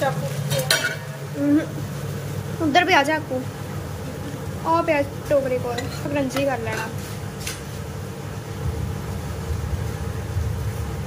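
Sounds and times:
bread frying in oil: 0.0 - 11.0
person speaking: 2.6 - 7.0.

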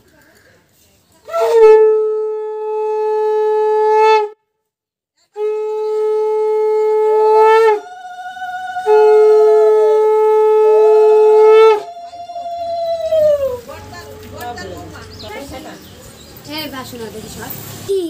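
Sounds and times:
conch shell blasts: 5.4 - 13.4
higher horn-like tone: 5.4 - 14.4.

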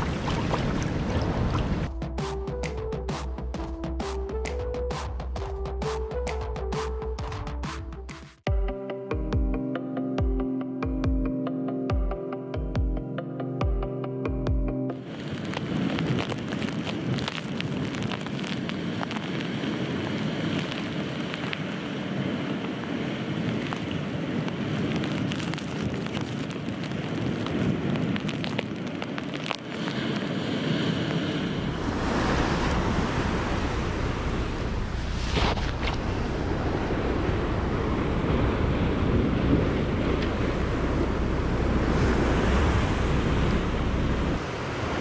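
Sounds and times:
surf at rocky shoreline: 0.0 - 1.9, 14.9 - 45.0
wind buffeting microphone: 0.0 - 2.2, 15.0 - 45.0.

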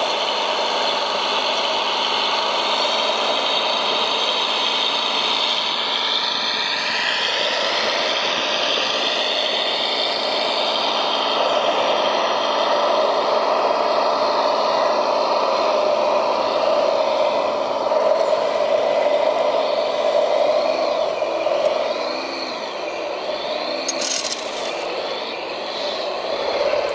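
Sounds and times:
electric motors whining: 0.0 - 26.9
steady mechanical hum: 0.0 - 26.9.

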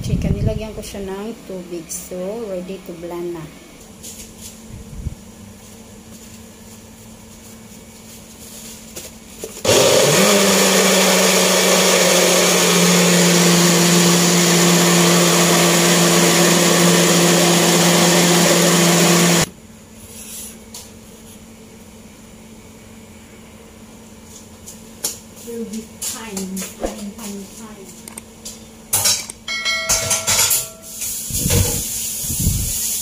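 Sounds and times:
blender motor running: 9.6 - 19.5.

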